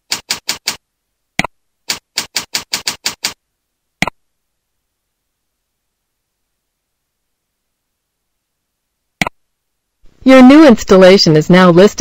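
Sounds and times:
keyboard keystrokes: 0.0 - 0.8, 1.4 - 3.4.

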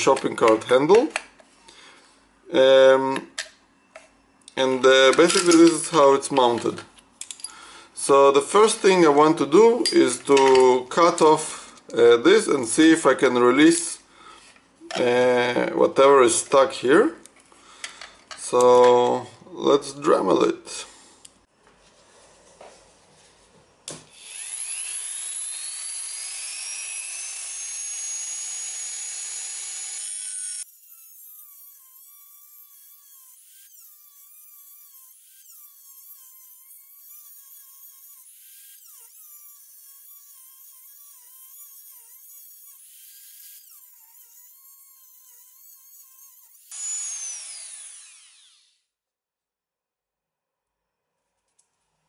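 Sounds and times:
rotary tool whine: 24.1 - 48.8.

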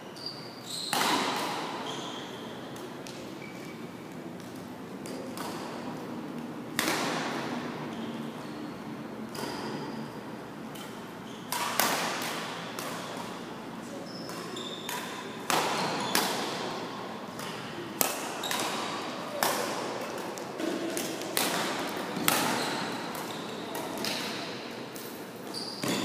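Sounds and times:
rackets hitting shuttlecock: 0.9 - 3.3, 4.4 - 6.0, 6.7 - 7.6, 9.3 - 10.0, 10.7 - 13.6, 14.2 - 24.7, 25.8 - 26.0.

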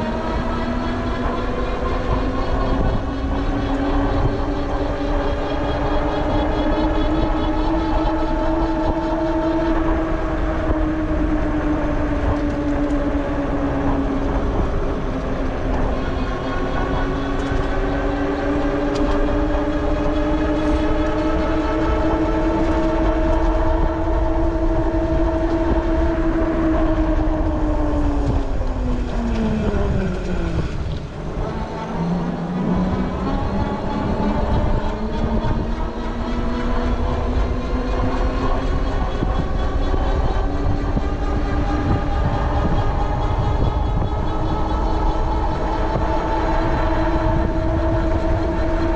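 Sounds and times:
wind and tyres rumbling: 0.0 - 48.9.

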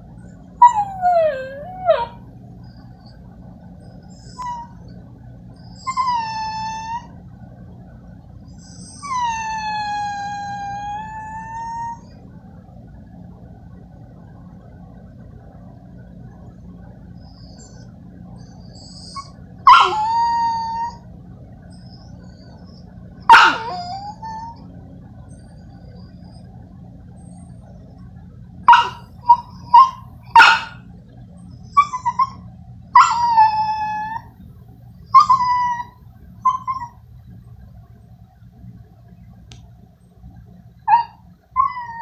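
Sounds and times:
dog whimpering and whining: 0.6 - 3.2, 3.8 - 7.2, 8.5 - 12.2, 17.2 - 21.1, 21.7 - 26.5, 28.7 - 30.8, 31.5 - 34.4, 35.1 - 37.0, 40.9 - 42.0.

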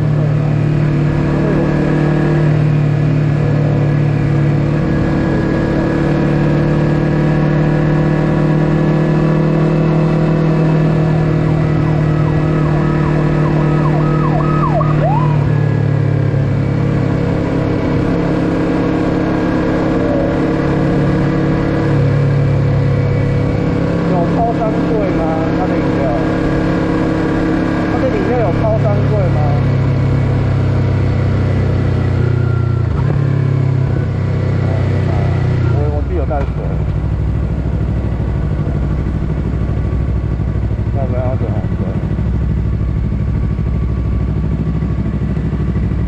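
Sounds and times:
motorcycle engine cruising: 0.0 - 46.0
high tone dipping in pitch: 11.6 - 15.6.

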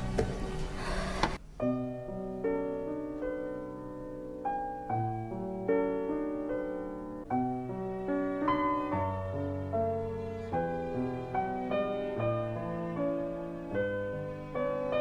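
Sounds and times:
solo grand piano melody: 0.0 - 15.0.

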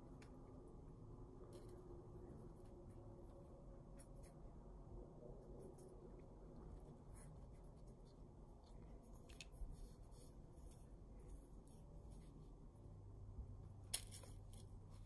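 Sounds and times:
faint low hum: 0.0 - 15.0
soft ticks and scratches: 1.4 - 12.9.

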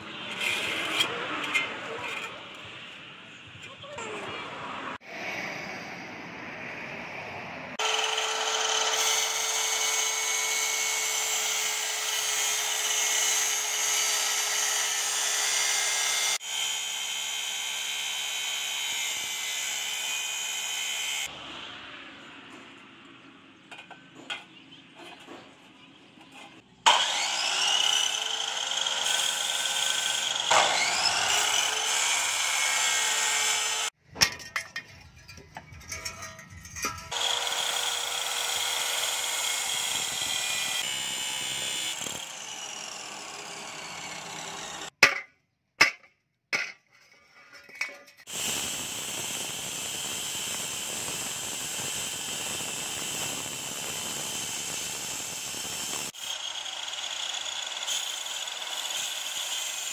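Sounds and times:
angle grinder on steel: 0.0 - 2.7, 7.8 - 21.4, 26.2 - 34.0, 35.7 - 45.0, 47.6 - 59.9.

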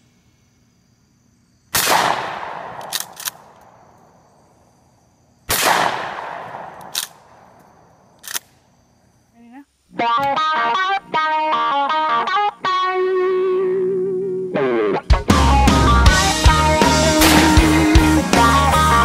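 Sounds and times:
shotgun blasts with echo: 1.7 - 3.6, 5.5 - 7.4, 17.2 - 18.2
shotgun action clacking: 1.8 - 3.7, 5.5 - 7.2, 17.2 - 17.9.

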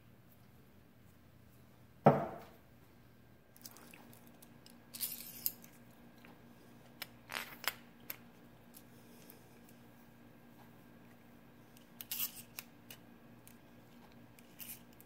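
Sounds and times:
faint steady hum: 0.0 - 15.0
wooden knock: 2.1 - 2.5.

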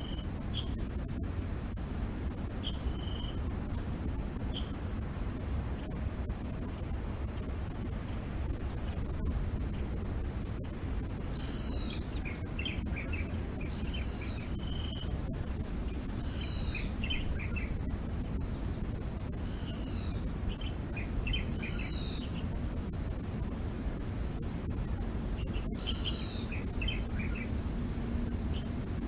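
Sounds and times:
high insect drone: 0.0 - 29.0
low background noise: 0.0 - 29.0
bird calling: 25.5 - 27.5.

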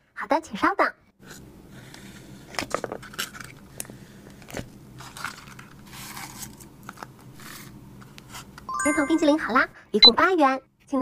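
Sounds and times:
paper rustling: 4.4 - 8.5.

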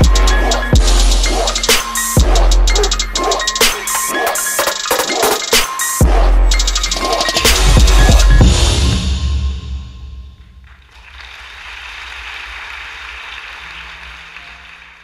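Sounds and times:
electronic music with heavy bass: 0.0 - 9.9
audience applause: 10.6 - 15.0.

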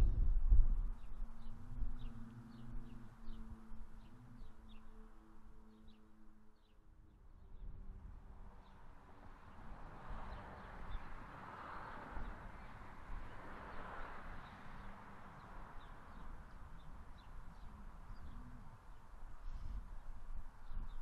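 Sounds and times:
low rumble: 0.0 - 4.6.

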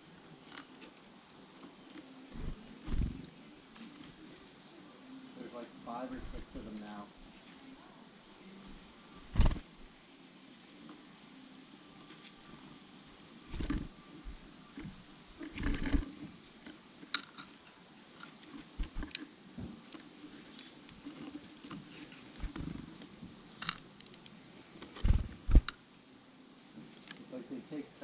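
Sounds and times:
bird wings fluttering: 2.3 - 4.2, 9.2 - 9.9, 13.5 - 16.5, 18.4 - 19.2, 21.4 - 23.0, 25.0 - 25.7
bird chirps: 2.3 - 4.3, 12.8 - 15.0, 19.9 - 20.7, 23.0 - 23.7.

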